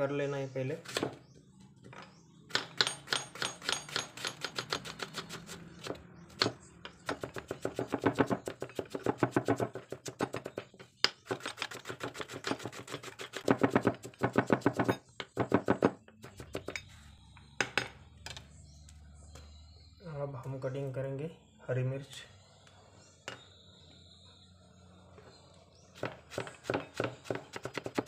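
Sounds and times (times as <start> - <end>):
knife chopping on wooden board: 2.5 - 16.7, 26.0 - 28.0.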